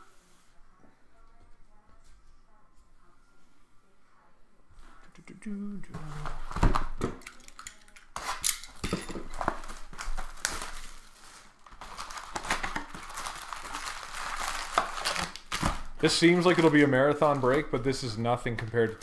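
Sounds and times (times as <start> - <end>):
card wrappers crinkling: 6.2 - 19.0.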